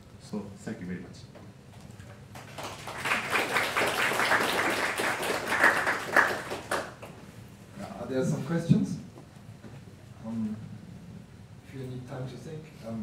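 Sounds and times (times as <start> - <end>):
audience applauding: 2.3 - 7.2.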